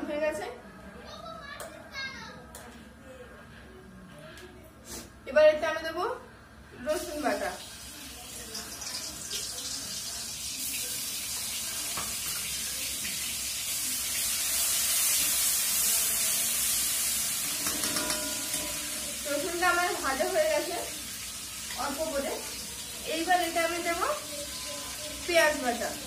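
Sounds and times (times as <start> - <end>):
garlic sizzling in hot oil: 7.0 - 26.0
spatula scraping pan: 17.3 - 19.5.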